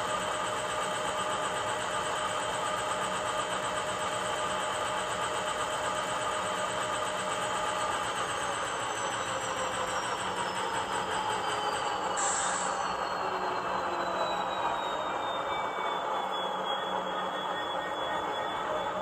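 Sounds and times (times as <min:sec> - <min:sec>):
model diesel engine sound: 0:00.0 - 0:19.0
air compressor running: 0:00.7 - 0:13.6.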